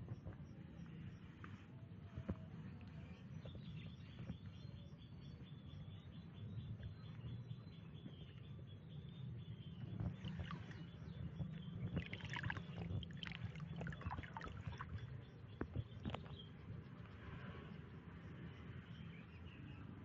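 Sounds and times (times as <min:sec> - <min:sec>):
water sloshing and splashing: 0:10.0 - 0:16.4
water dripping: 0:11.9 - 0:15.1.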